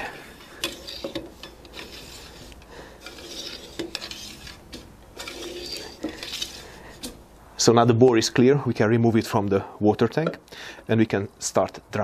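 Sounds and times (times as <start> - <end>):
cleaning rod scraping in barrel: 0.0 - 7.2.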